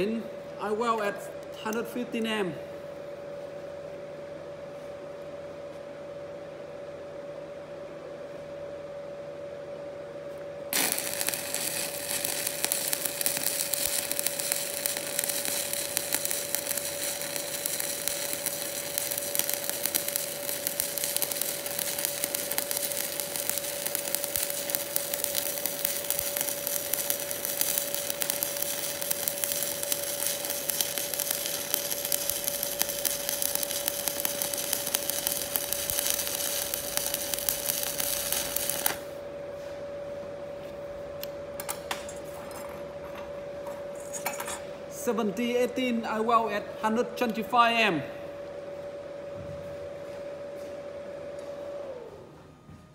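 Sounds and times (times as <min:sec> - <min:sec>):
crackling welding arc: 0:10.7 - 0:39.2.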